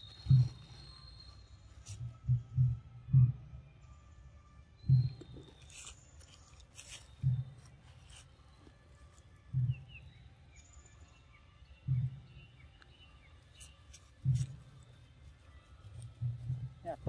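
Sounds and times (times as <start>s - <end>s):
low dull thuds: 0.0s - 0.9s, 2.0s - 3.6s, 4.8s - 5.5s, 7.2s - 7.9s, 9.5s - 10.1s, 11.8s - 12.7s, 14.0s - 15.0s, 15.9s - 17.0s
faint bird chirps: 0.0s - 17.0s.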